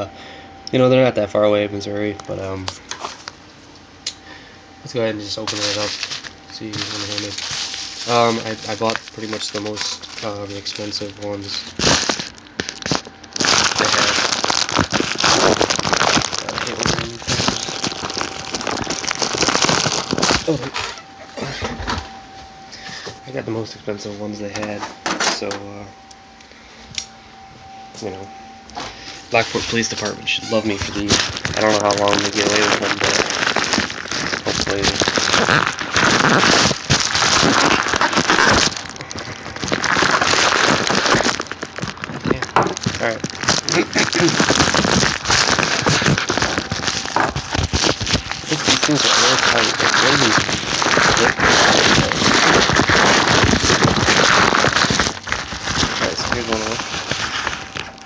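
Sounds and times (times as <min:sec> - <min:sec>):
bubble mailer crinkling: 0:04.8 - 0:21.6, 0:28.8 - 0:58.0.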